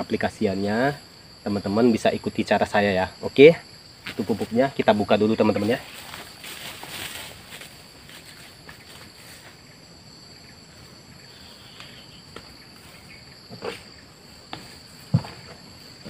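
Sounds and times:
high-pitched insect chorus: 0.0 - 16.0
plastic bucket rustling and knocking: 14.5 - 15.7.

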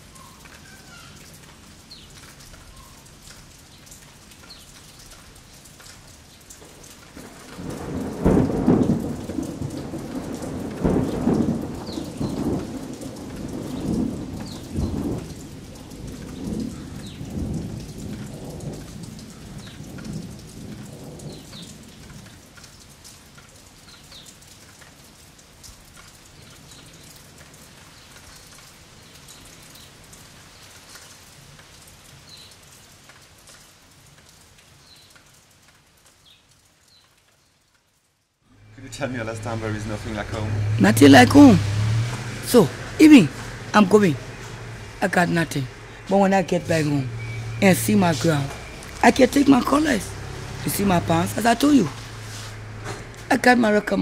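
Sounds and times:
steady rain: 0.0 - 54.0
rolling thunder: 7.1 - 22.2.

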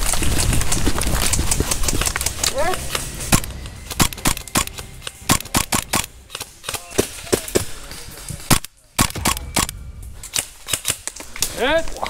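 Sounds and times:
airsoft gun shots: 3.3 - 7.7, 8.5 - 11.1.

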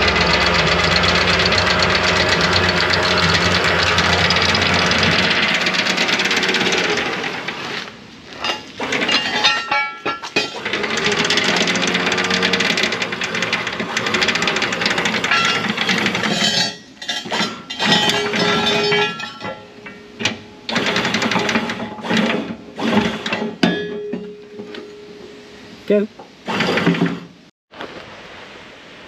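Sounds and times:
windlass motor running: 0.0 - 19.5
anchor chain links clanking: 8.4 - 22.4.

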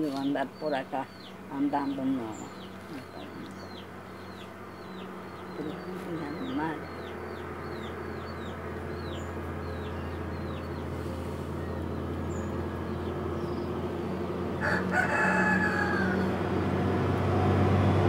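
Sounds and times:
rooster crowing: 14.6 - 16.5.

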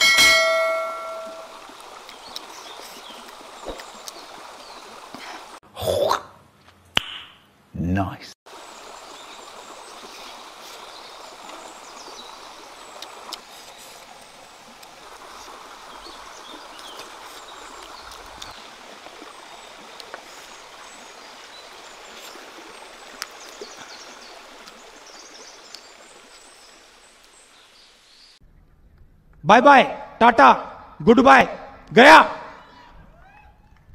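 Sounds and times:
stream running over rocks: 0.0 - 5.6, 8.5 - 28.4.

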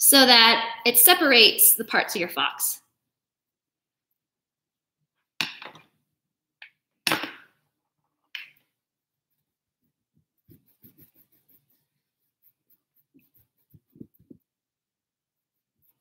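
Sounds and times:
paintbrush scratching on canvas: 9.2 - 16.0.

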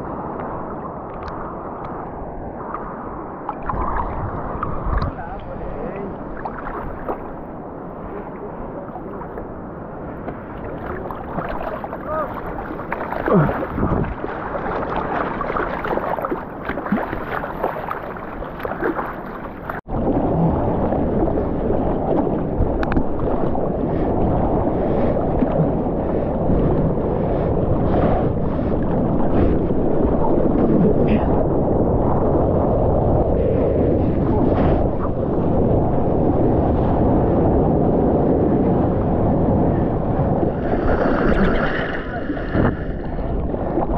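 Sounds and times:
rush of water and wind: 0.0 - 43.9
water lapping and sloshing: 0.1 - 32.8, 38.8 - 43.9
small splashes: 10.6 - 19.9.

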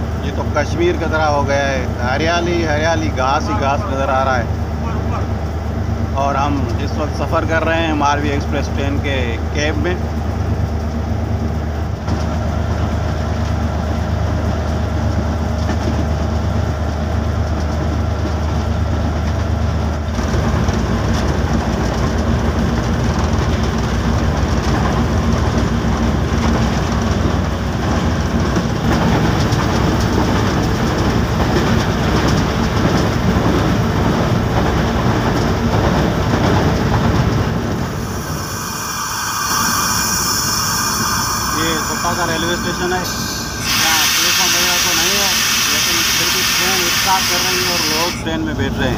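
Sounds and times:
train engine drone: 0.0 - 48.9
wheels rumbling on track: 0.0 - 48.9
high shrill sound: 37.7 - 48.2.

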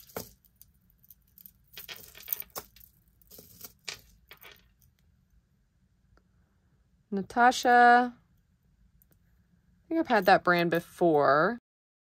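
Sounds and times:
jewelry clinking: 0.0 - 5.0.

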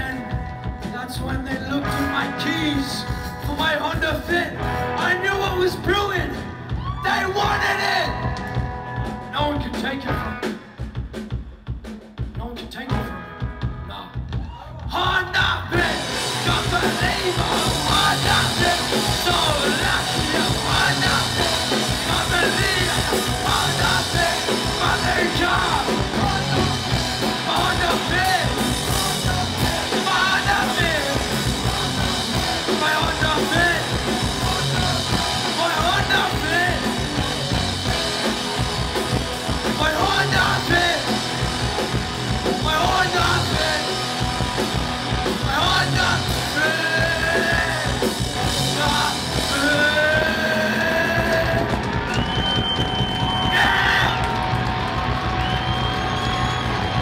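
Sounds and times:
live rock band: 0.0 - 57.0
shouted vocals: 6.6 - 8.2, 48.6 - 57.0.

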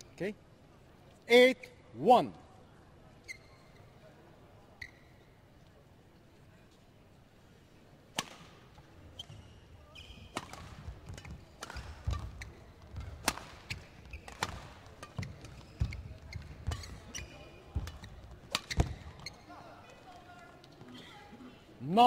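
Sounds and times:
racket hitting shuttlecock: 8.2 - 8.7, 10.3 - 17.2, 17.8 - 19.3.

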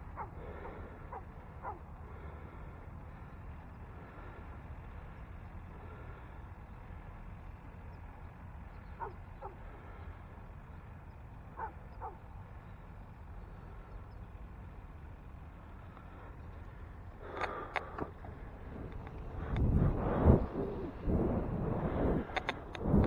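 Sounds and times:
dog barking: 0.1 - 1.8, 9.0 - 9.6, 11.6 - 12.2
low rumble: 14.8 - 23.0.

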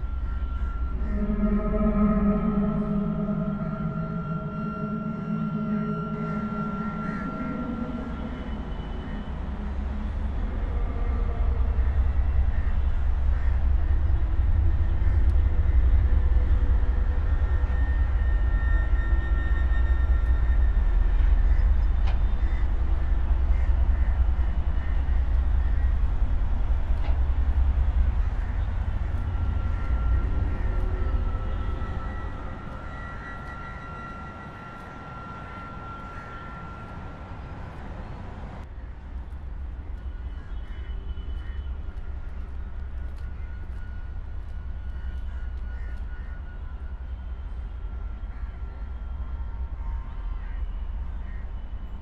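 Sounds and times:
deep low rumble: 0.0 - 34.4.

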